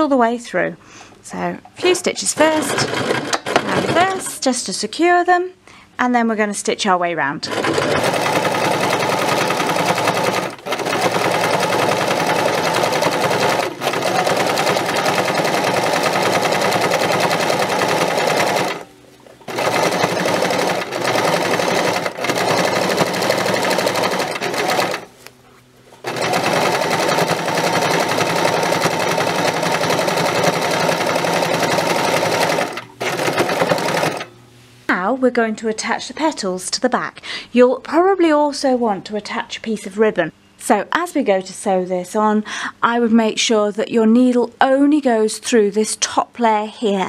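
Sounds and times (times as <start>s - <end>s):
electric sewing machine running: 2.4s - 4.3s, 7.5s - 18.9s, 19.5s - 25.1s, 26.0s - 34.3s.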